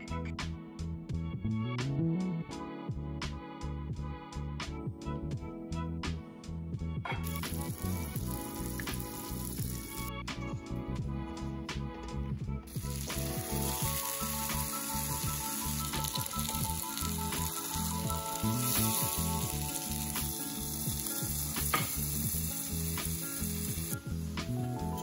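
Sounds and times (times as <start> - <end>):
background music: 0.0 - 25.0
bread sizzling in a pan: 7.2 - 10.1, 12.7 - 25.0.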